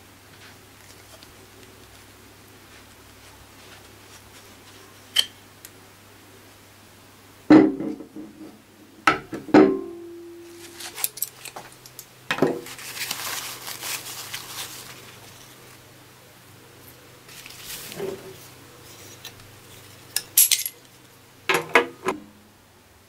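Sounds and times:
paper towel rustling: 0.3s - 5.1s, 10.4s - 11.6s, 12.5s - 15.9s, 16.8s - 20.1s.

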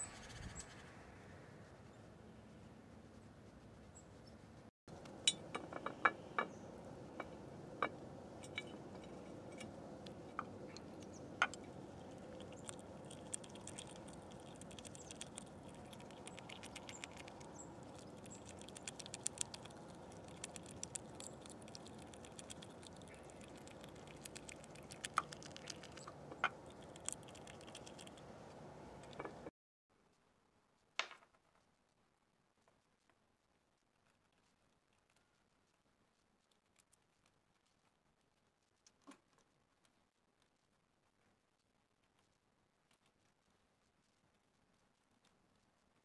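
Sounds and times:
small animal tapping and clicking: 5.0s - 28.3s
fast fine ticking: 10.1s - 28.2s.

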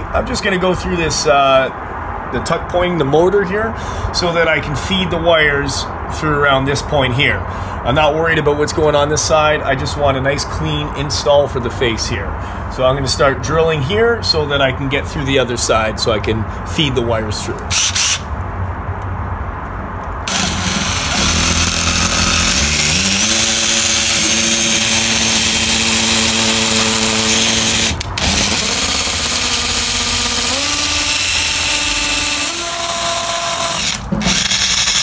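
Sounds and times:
hammer drill boring into brick: 17.7s - 18.2s, 20.3s - 35.0s.

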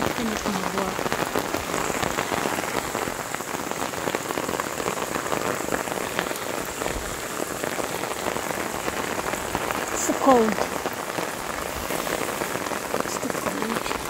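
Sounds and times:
rain falling on plants: 0.0s - 14.0s.

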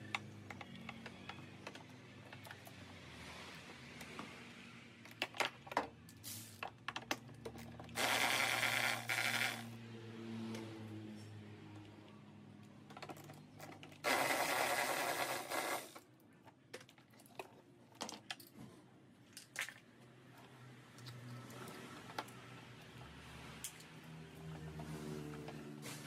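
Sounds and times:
cordless power tool spinning: 8.0s - 9.7s, 14.0s - 16.0s.

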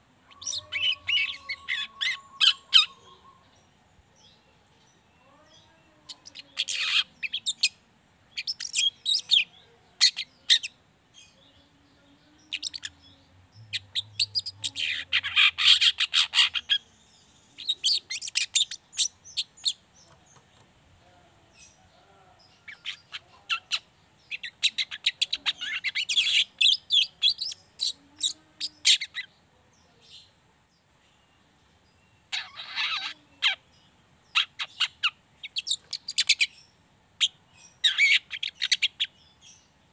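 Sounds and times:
shrike scratchy chatter: 6.1s - 7.7s.

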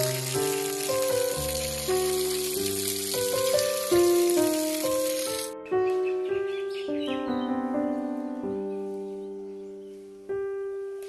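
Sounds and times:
steady hiss: 0.0s - 5.5s
music of held notes: 0.0s - 11.0s.

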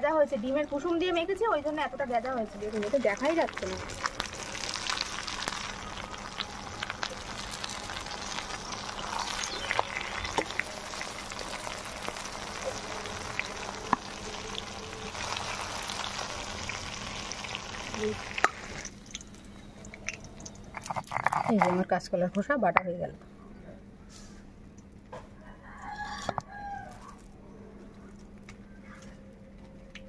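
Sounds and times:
deep-frying sizzle and crackle: 0.1s - 21.5s, 25.7s - 27.3s.

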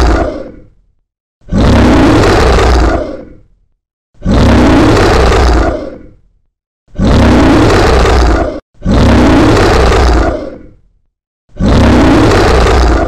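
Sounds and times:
monster roar: 0.0s - 0.7s, 1.4s - 3.5s, 4.2s - 6.2s, 6.9s - 10.8s, 11.5s - 13.0s.

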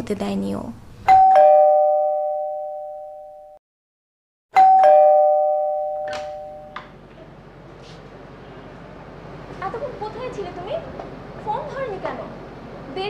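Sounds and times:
two-tone doorbell chime: 1.1s - 3.6s, 4.5s - 6.8s.

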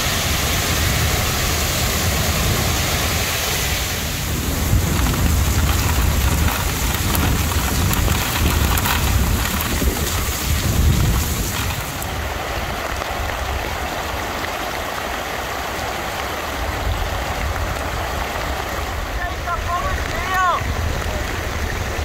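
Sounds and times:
heavy rain pouring: 0.0s - 22.0s
water running across road: 0.0s - 22.0s
low rumble: 4.2s - 12.2s.

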